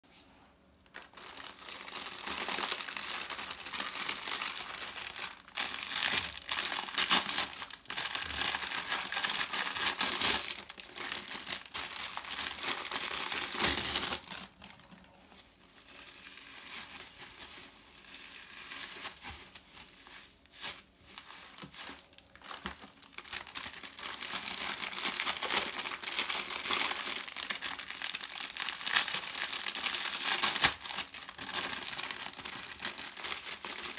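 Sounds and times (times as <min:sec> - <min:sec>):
plastic wrappers crinkling: 0:00.8 - 0:33.9.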